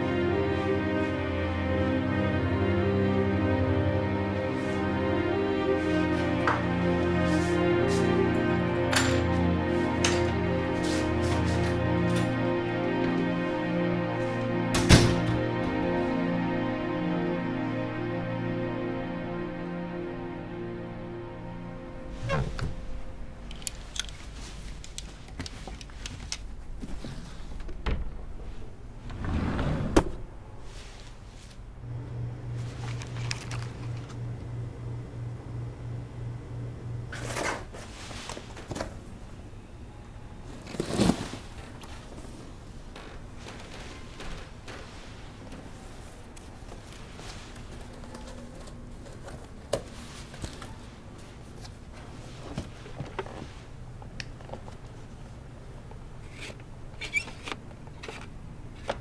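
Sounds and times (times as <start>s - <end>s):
drawer sliding open: 29.0s - 30.2s.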